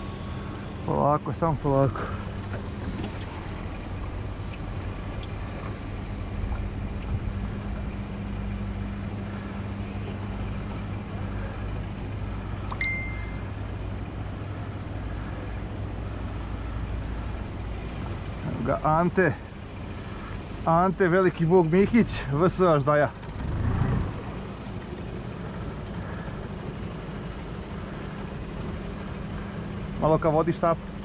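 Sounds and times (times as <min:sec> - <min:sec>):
outboard motor running: 0:00.0 - 0:31.0
short high beep: 0:12.8 - 0:13.5.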